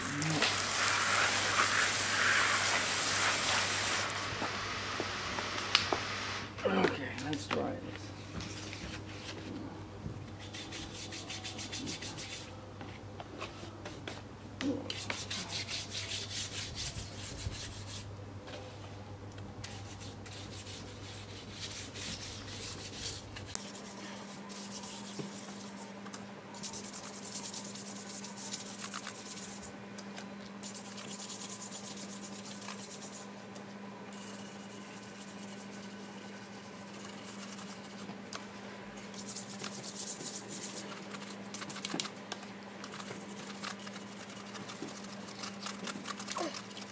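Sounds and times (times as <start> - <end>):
toothbrush scrubbing wheel rim: 26.6 - 29.7, 30.6 - 33.2, 34.1 - 38.1, 39.2 - 42.0, 42.8 - 46.9.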